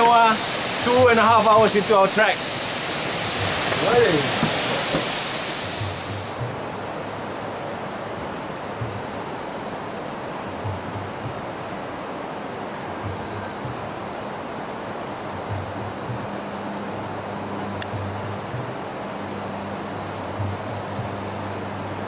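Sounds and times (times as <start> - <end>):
continuous rushing hiss: 0.0 - 22.0
insect drone: 0.0 - 22.0
soft low knocks: 3.0 - 6.8, 8.8 - 9.2, 10.6 - 11.6, 12.9 - 14.1, 15.4 - 16.5, 17.6 - 18.8, 20.3 - 21.4.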